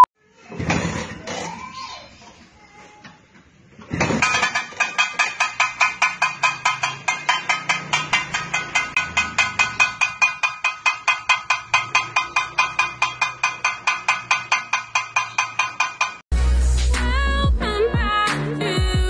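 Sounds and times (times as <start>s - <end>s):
metal pot struck with utensil: 4.2s - 16.2s
music with deep bass: 16.3s - 19.0s.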